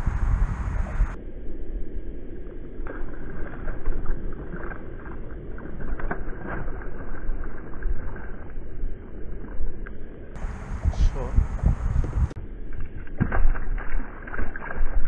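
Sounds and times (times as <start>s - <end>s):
wind on microphone: 0.0s - 1.2s, 10.4s - 15.0s
water lapping against hull: 2.8s - 15.0s.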